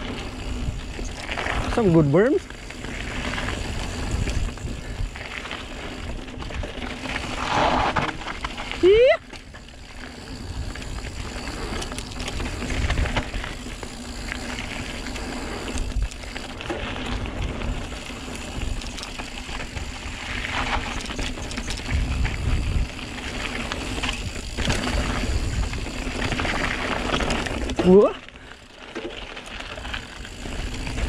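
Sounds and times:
wind buffeting microphone: 0.0 - 6.7, 17.4 - 26.6
bike rattling over bumps: 0.0 - 31.0
bike tyres crunching on dirt: 0.0 - 31.0.

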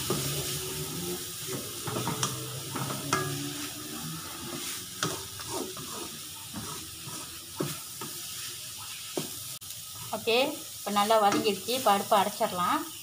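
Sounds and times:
spatula scraping a pan: 0.0 - 9.4
food sizzling in a wok: 0.0 - 13.0.

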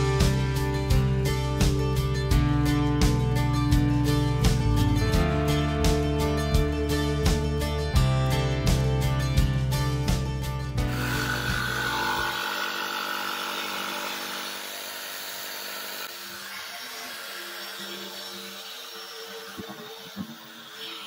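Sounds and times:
jigsaw sawing wood: 10.8 - 21.0.

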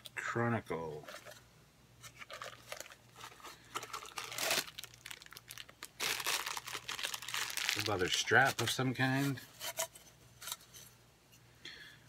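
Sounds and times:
plastic packaging crinkling: 2.0 - 9.1.

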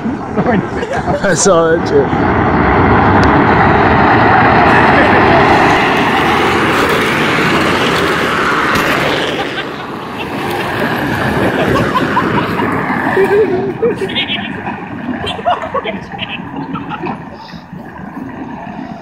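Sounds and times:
plastic toy car wheels rumbling on asphalt: 2.1 - 17.2.

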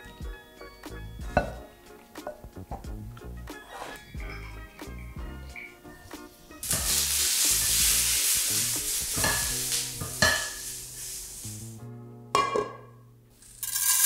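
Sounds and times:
spatula scraping through onion: 3.6 - 4.1
onion sizzling in a frying pan: 6.5 - 11.8.

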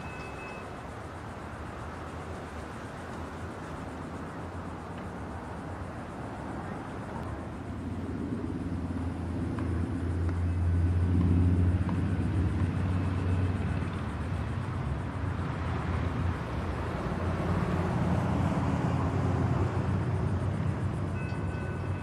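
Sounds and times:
diesel locomotive engine drone: 6.2 - 22.0.

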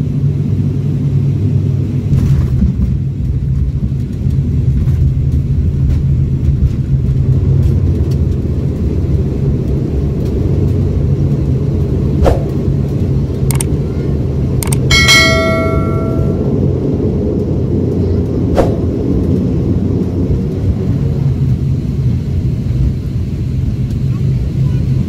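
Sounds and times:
airliner rolling rumble: 0.0 - 25.0
turboprop engines droning: 0.0 - 25.0
sharp click: 13.5 - 13.7, 14.6 - 14.9.

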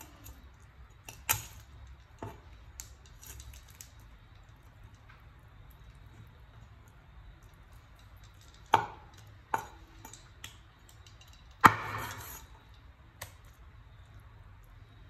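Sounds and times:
knife chopping on wooden board: 11.6 - 12.4.

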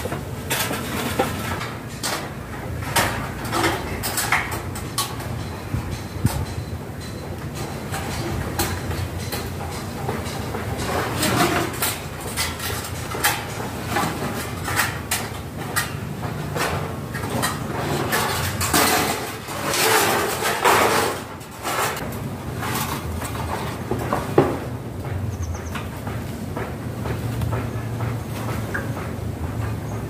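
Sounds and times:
scraping on timber: 16.5 - 22.0.

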